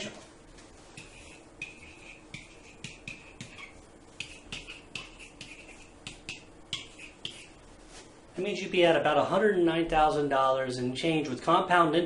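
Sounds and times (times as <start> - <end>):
pen tapping and squeaking on whiteboard: 0.9 - 7.6.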